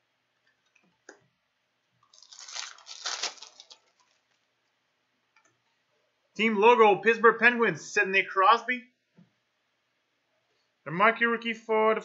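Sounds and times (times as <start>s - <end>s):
foil wrapper tearing and crinkling: 2.1s - 4.4s.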